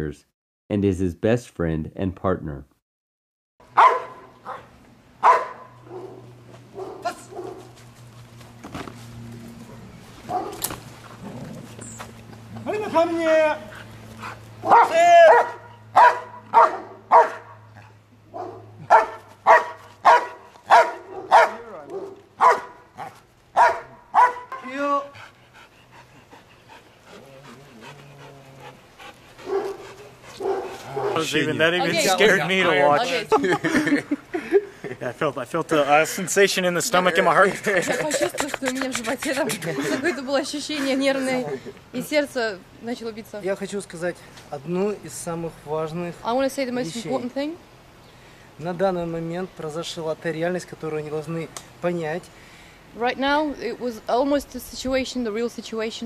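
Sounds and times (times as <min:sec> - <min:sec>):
dog barking: 0:03.7 - 0:07.7, 0:10.3 - 0:10.7, 0:14.6 - 0:17.7, 0:18.3 - 0:24.7, 0:29.4 - 0:31.3
dog panting and whimpering: 0:13.6 - 0:14.6, 0:24.6 - 0:30.9, 0:37.9 - 0:41.6.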